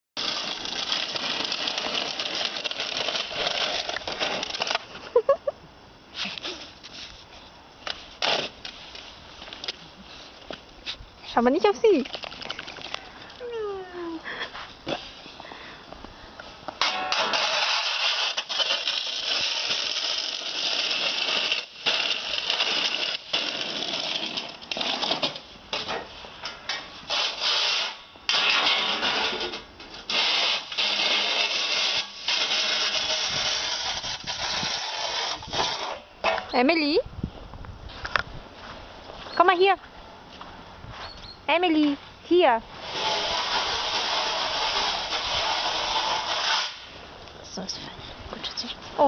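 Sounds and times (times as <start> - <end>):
snow shovel scraping pavement: 0.2 - 4.9, 16.8 - 25.4, 27.0 - 36.1, 42.8 - 47.0
short loud squeaks: 41.0 - 41.5.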